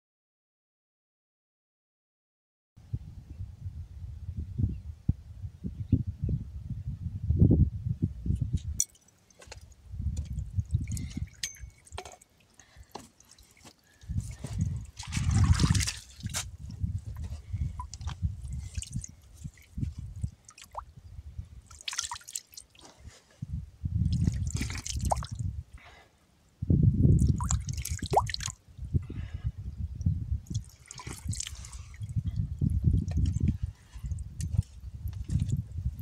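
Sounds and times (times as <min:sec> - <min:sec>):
wet plaster dripping and squelching: 0:08.9 - 0:20.8, 0:21.7 - 0:23.2, 0:24.1 - 0:25.4, 0:27.2 - 0:28.5, 0:30.5 - 0:35.6.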